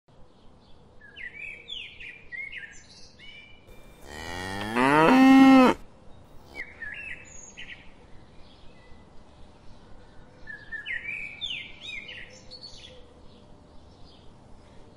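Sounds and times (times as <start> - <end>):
cow mooing: 3.8 - 5.8.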